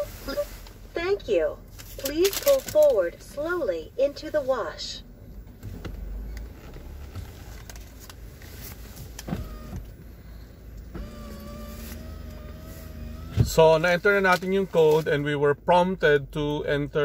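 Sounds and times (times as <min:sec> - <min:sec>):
car rumbling: 0:00.0 - 0:17.0
electric motor whine: 0:11.0 - 0:13.5.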